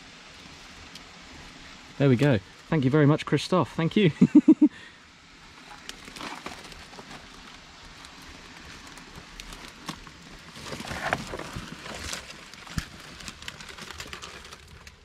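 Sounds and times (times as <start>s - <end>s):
twigs cracking and clicking: 5.6s - 15.0s.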